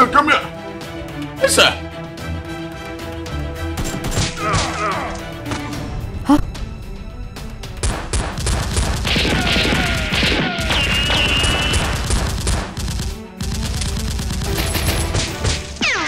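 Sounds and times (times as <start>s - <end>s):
action music: 0.0s - 16.0s
rapid gunfire: 7.8s - 16.0s.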